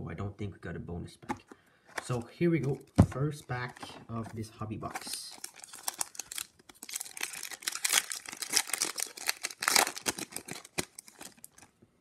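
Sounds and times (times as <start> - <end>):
wrapper crinkling as torn open: 5.0 - 11.7.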